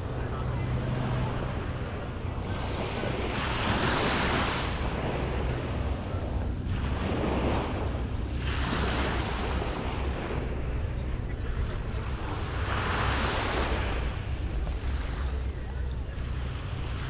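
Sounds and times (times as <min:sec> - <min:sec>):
waves washing on sandy beach: 0:00.0 - 0:17.0
wind rumble on microphone: 0:00.0 - 0:17.0.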